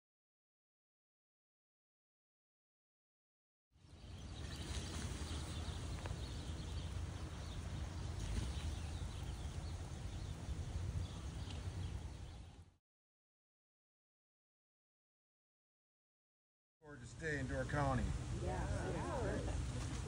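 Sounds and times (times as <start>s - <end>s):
wind rumble on microphone: 3.8s - 12.7s.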